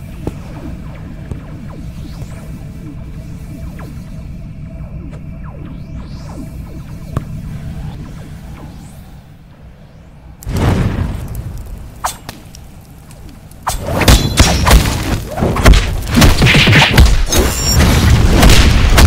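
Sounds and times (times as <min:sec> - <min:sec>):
heavy boom: 0:10.4 - 0:11.8.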